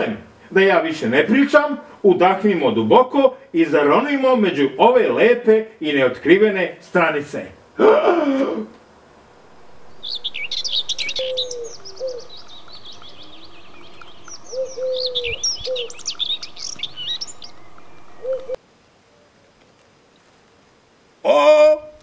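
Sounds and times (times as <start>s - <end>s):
birds chirping and trilling: 9.2s - 18.6s
low bird coos: 9.4s - 19.5s.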